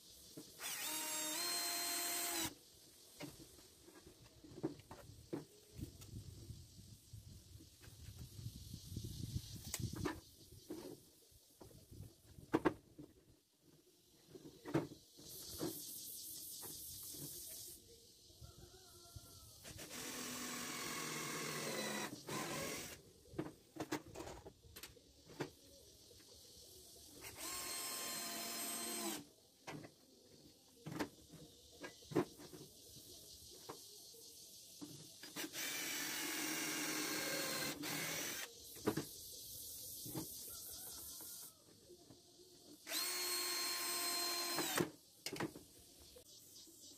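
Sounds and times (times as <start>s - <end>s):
drill driving screws into wood: 0.6s - 2.6s, 19.6s - 23.0s, 27.2s - 29.3s, 35.2s - 38.5s, 42.8s - 45.0s.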